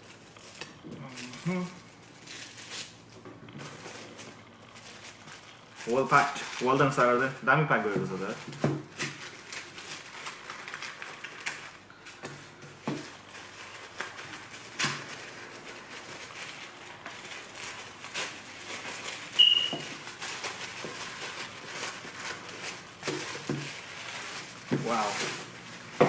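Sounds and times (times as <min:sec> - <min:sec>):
wrapping paper tearing and crinkling: 0:00.0 - 0:26.0
brief high squeak: 0:19.4 - 0:19.8.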